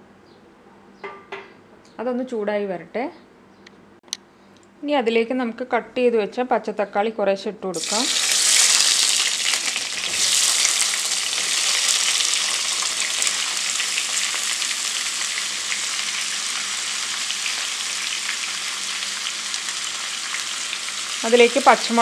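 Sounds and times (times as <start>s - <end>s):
tomatoes sizzling in hot oil: 7.8s - 22.0s.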